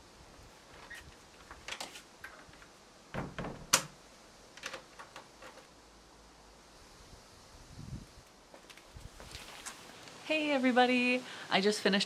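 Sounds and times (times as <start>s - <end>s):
door lock clicks and knocks: 3.1s - 4.0s.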